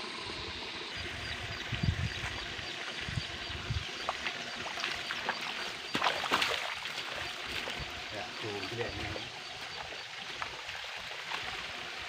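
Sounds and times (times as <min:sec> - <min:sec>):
water sloshing and splashing: 0:03.6 - 0:12.0.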